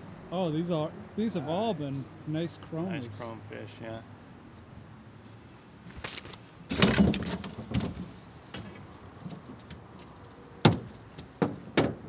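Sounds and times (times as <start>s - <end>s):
knocks and thumps in metal boat: 6.7s - 9.4s.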